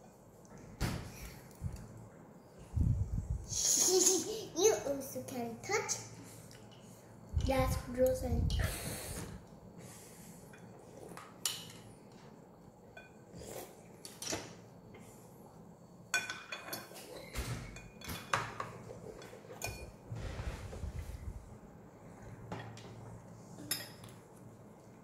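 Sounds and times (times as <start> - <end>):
cutlery clinking on plates: 16.2 - 20.0.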